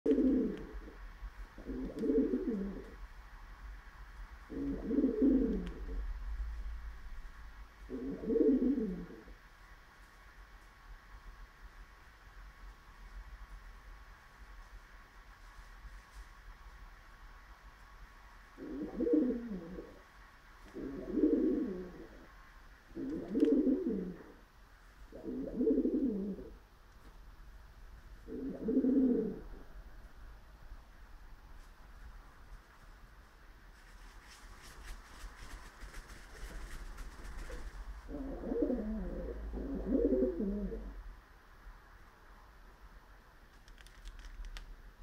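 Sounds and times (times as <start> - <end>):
pigeon cooing: 0.1 - 3.0, 4.5 - 6.1, 7.9 - 9.3, 18.6 - 20.0, 20.7 - 24.4, 25.1 - 26.6, 28.3 - 29.7, 37.2 - 41.0.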